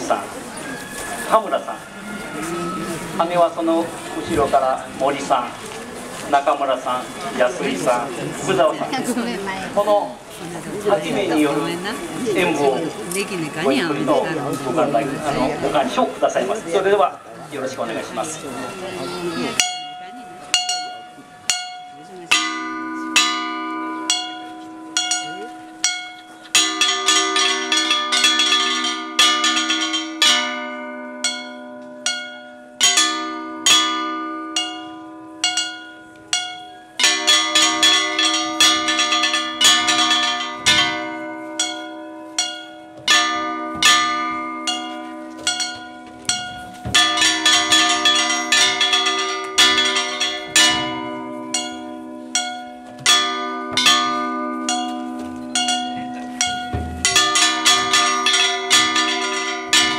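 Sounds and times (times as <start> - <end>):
hand cymbals clashing: 31.2 - 59.9
drums beaten in time: 42.4 - 59.9.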